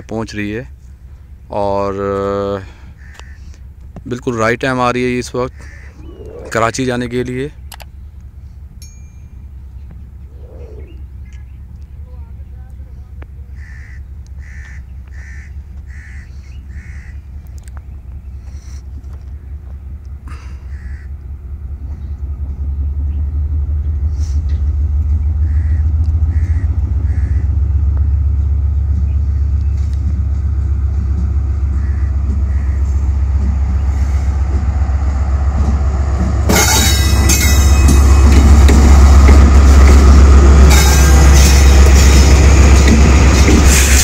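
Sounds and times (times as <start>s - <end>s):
diesel locomotive engine rumble: 0.0s - 44.0s
train wheels rushing past: 21.3s - 44.0s.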